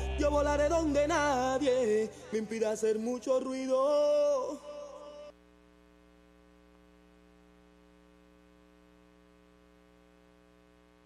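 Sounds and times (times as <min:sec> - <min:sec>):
theme music: 0:00.0 - 0:01.7
faint steady hum: 0:00.0 - 0:11.0.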